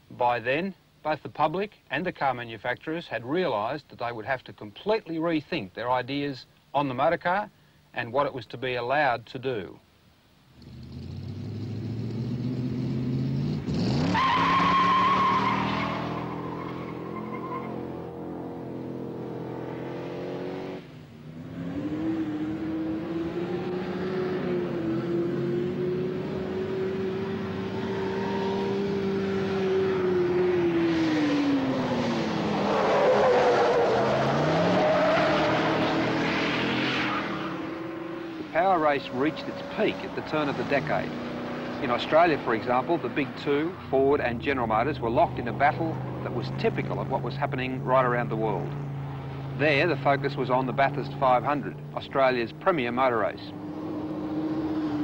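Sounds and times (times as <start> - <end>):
car engine revving: 10.6 - 55.0
tyres squealing: 14.1 - 18.0.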